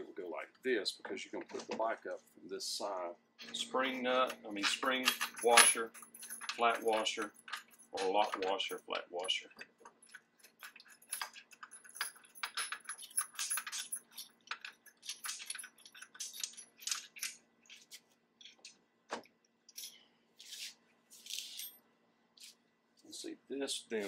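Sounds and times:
metal hardware clinking: 3.4 - 17.8.

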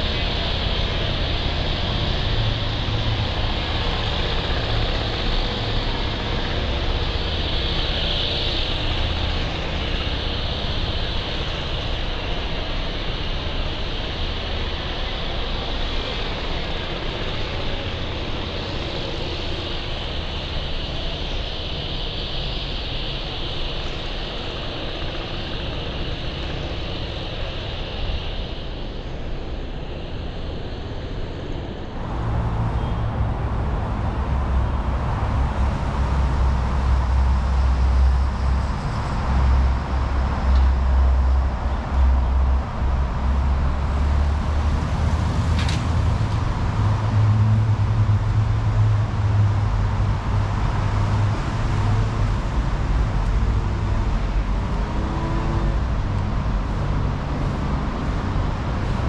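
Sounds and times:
road traffic low rumble: 31.9 - 59.0.

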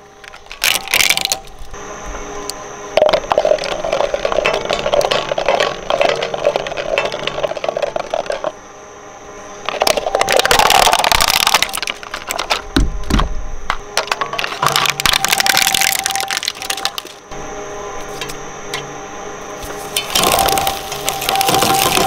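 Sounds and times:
shredder cutters turning: 0.2 - 1.8, 13.9 - 17.2, 19.6 - 22.0
plastic pitcher rattling on blades: 0.3 - 1.7, 3.0 - 8.6, 9.6 - 12.7, 14.0 - 17.2, 19.9 - 22.0
plastic cracking and scraping: 9.7 - 17.2, 19.9 - 22.0.

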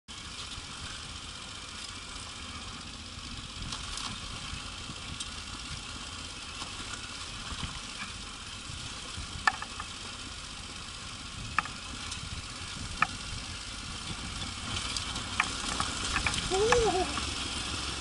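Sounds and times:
motorcycle engine at low speed: 0.1 - 18.0
tyres on gravel: 0.1 - 18.0
light clicks and rattles: 14.0 - 17.3.

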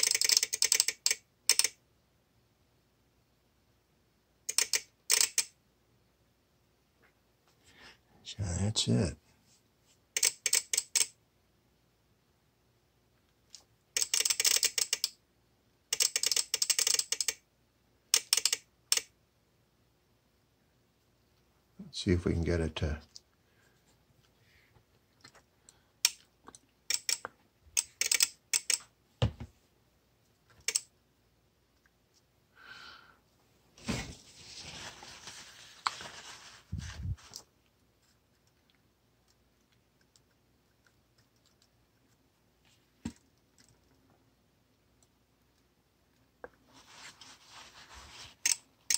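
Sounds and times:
sharp clicks: 26.0 - 28.9, 30.6 - 30.9
paper towel rustling: 33.8 - 37.4, 46.7 - 48.4.

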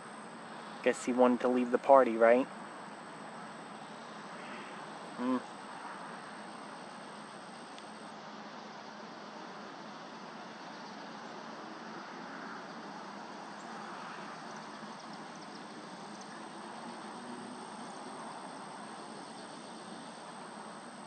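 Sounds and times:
low outdoor hiss: 0.0 - 21.0
faint high ticks: 7.5 - 8.0.

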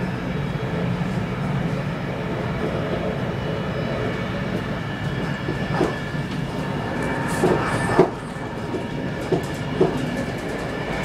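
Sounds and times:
train running noise: 0.0 - 11.0
wheels knocking on track: 7.3 - 11.0.

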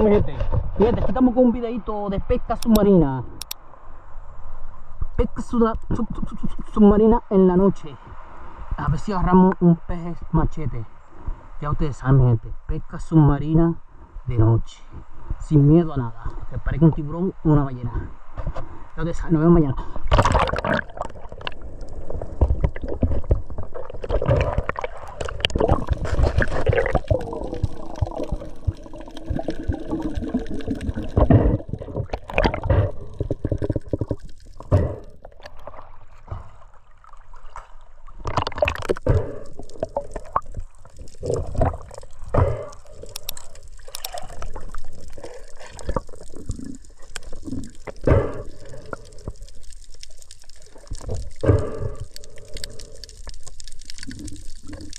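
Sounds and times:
underwater water sloshing: 19.8 - 54.9.

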